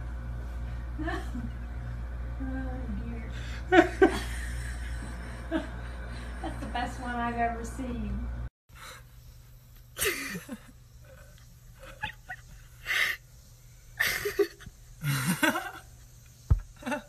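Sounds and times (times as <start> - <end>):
people laughing wheezily: 10.0 - 13.2, 14.0 - 15.9.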